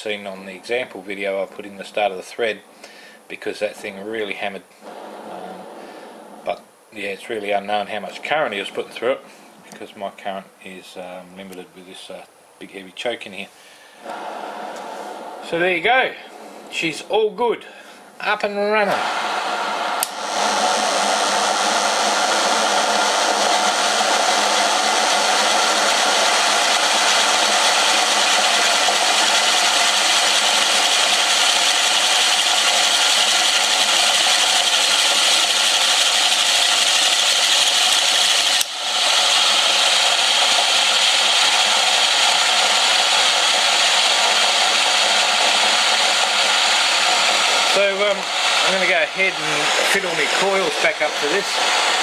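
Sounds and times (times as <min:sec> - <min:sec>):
motor rotor whirring hum: 0:19.1 - 0:52.0.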